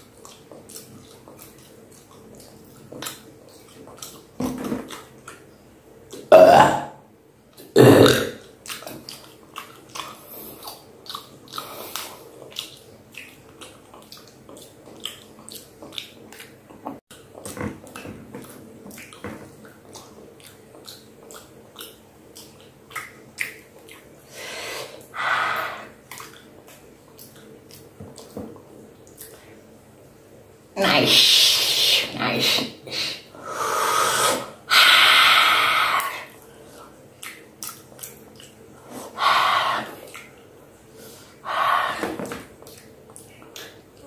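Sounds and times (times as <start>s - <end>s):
wet chewing mouth clicks: 0.0s - 5.5s, 8.4s - 24.2s, 25.6s - 28.4s, 37.2s - 40.5s, 42.6s - 44.0s
person burping loudly: 6.3s - 7.0s, 7.8s - 8.4s.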